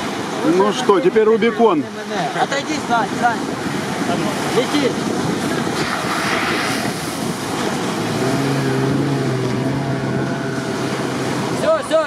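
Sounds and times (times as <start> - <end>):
surf: 0.0 - 12.0
wind: 0.0 - 12.0
car engine driving through sand: 5.8 - 12.0.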